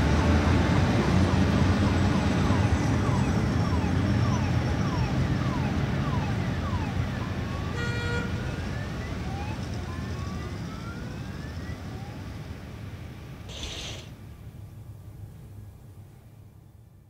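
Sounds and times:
emergency vehicle siren: 0.0 - 13.9
low traffic rumble: 0.0 - 17.0
horn-like tone: 7.8 - 8.4.

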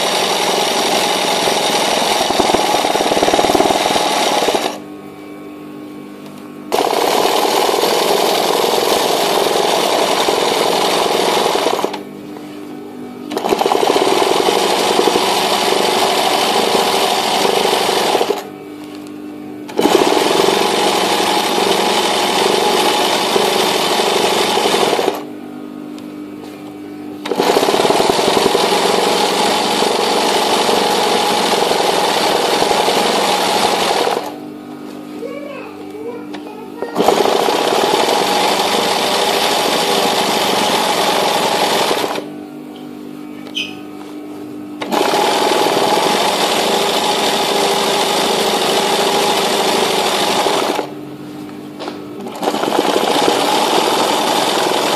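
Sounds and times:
sewing machine running fast: 0.0 - 4.8, 6.7 - 12.0, 13.3 - 18.5, 19.7 - 25.3, 27.2 - 34.4, 36.9 - 42.3, 44.8 - 50.9, 52.2 - 54.9.

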